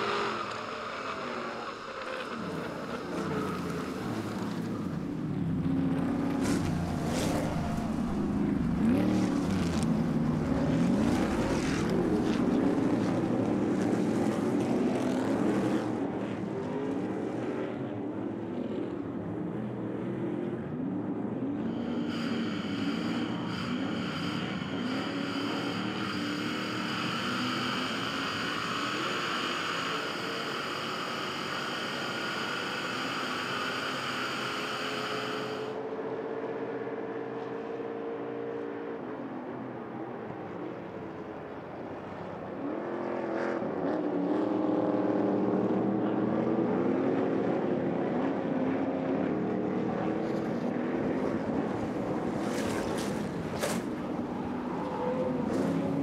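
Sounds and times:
race truck engines: 0.0 - 56.0
high whine: 21.6 - 36.0.

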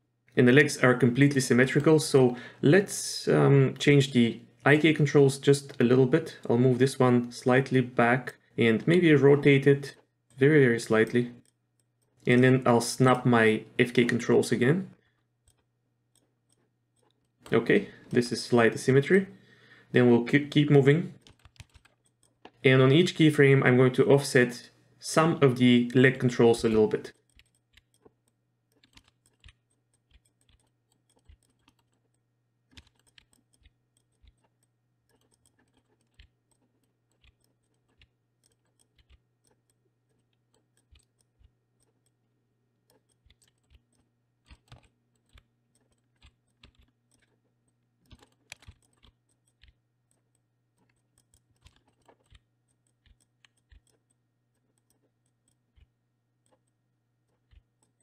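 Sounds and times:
keyboard key presses: 21.2 - 22.6, 26.6 - 42.2, 42.8 - 58.0
mouse clicks: 25.3 - 42.2, 42.8 - 58.0.

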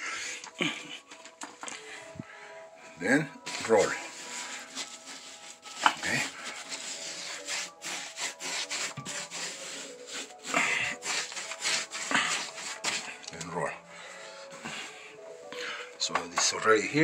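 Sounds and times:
paint roller rubbing on wall: 3.2 - 15.1.

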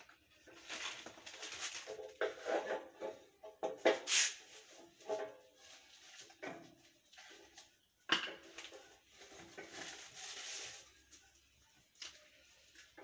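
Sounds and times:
rustling: 0.4 - 2.4, 8.7 - 11.3.

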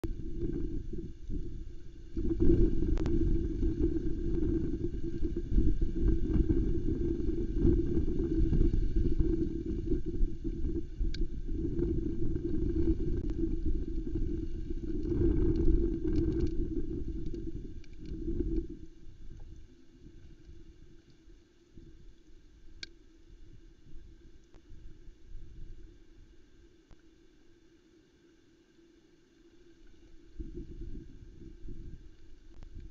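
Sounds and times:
faint ticks: 0.0 - 5.4, 7.6 - 24.8, 26.4 - 32.9
wind buffeting microphone: 0.0 - 19.4, 30.4 - 32.9.

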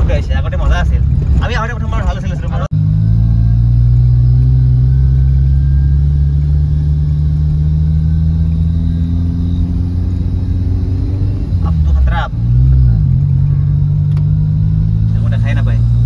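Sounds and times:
car engine hum from inside cabin: 0.0 - 16.0
road noise: 0.0 - 16.0.

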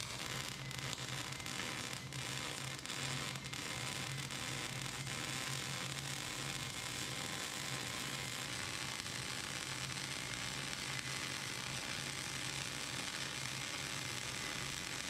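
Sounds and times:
welding arc crackling sizzle: 0.0 - 15.0.

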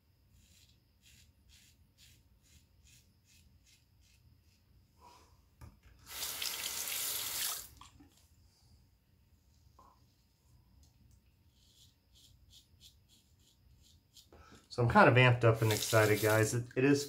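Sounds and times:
tap water running: 6.0 - 8.2, 15.6 - 16.5.

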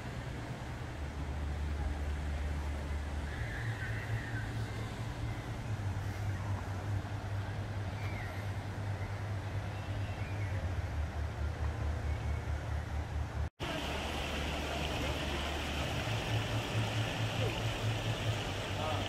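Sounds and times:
faint distant voices: 1.2 - 19.0
steady hiss: 13.6 - 19.0.

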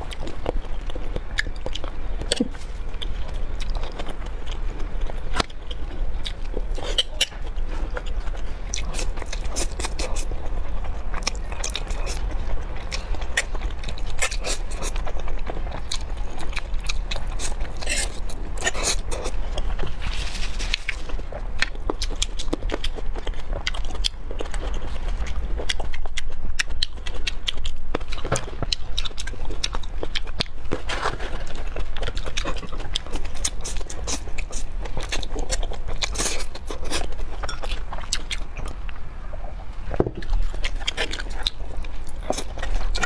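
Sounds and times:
person chewing food: 0.0 - 43.0
steady low hum: 0.0 - 43.0.

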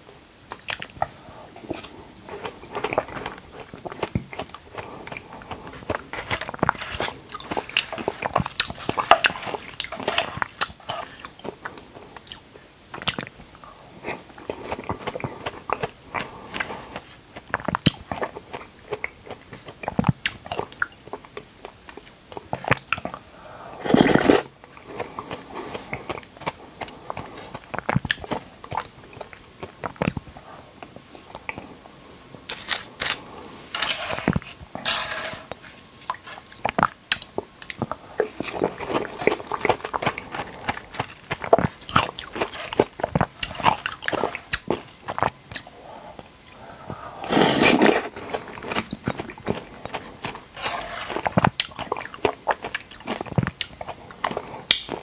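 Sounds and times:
person chewing fruit: 0.5 - 55.0.

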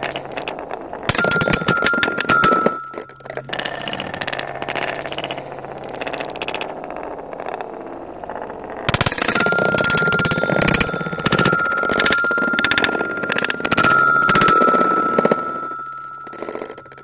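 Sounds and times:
marbles clinking on chime bars: 1.1 - 3.8, 8.9 - 17.0
marbles rolling on wooden track: 1.1 - 4.4, 8.9 - 17.0.

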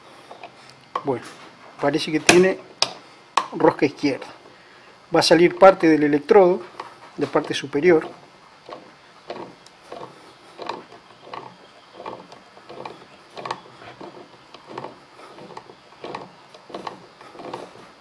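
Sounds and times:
metallic creaks and clicks: 5.4 - 18.0.

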